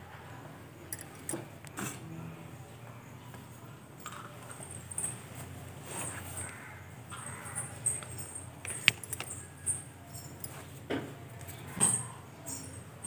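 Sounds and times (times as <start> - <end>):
small objects clicking and knocking: 7.6 - 9.8.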